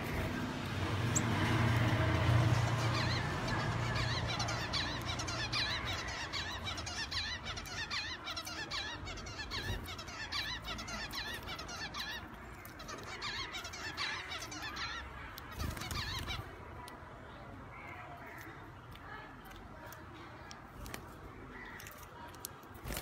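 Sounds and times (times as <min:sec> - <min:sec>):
finches calling: 0:01.1 - 0:16.5.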